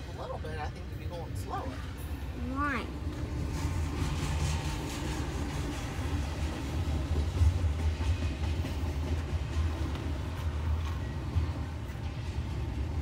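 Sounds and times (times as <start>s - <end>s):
freight train rumbling past: 0.0s - 13.0s
train wheels clicking: 3.0s - 13.0s.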